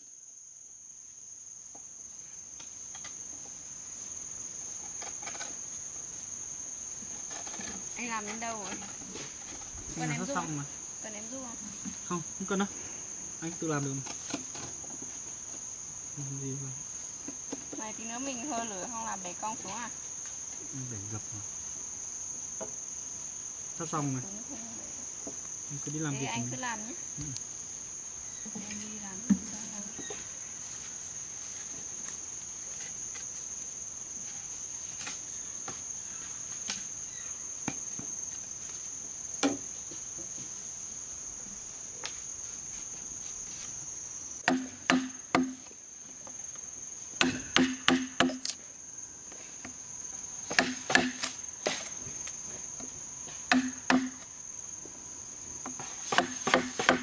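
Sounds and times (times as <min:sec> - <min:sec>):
high insect drone: 0:00.0 - 0:57.0
chisel striking bamboo: 0:44.4 - 0:45.7, 0:47.2 - 0:48.6, 0:50.5 - 0:51.9, 0:53.5 - 0:54.3, 0:55.7 - 0:57.0.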